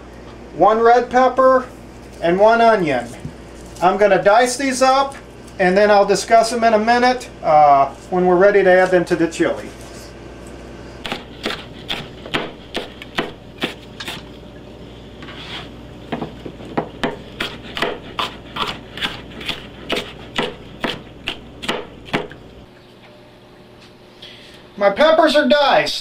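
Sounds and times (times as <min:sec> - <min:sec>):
knife chopping on cutting board: 0:11.0 - 0:14.2, 0:16.1 - 0:22.4.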